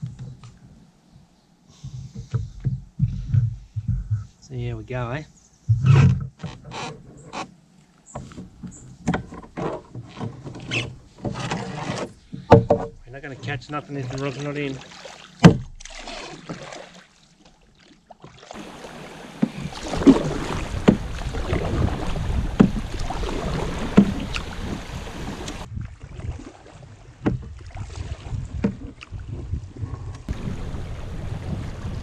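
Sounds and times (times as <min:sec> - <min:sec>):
knocks on canoe: 0:12.4 - 0:13.0, 0:15.4 - 0:15.8, 0:18.6 - 0:25.7, 0:27.2 - 0:27.5
rushing water: 0:13.1 - 0:29.4, 0:30.2 - 0:32.0
wind on microphone: 0:18.6 - 0:32.0.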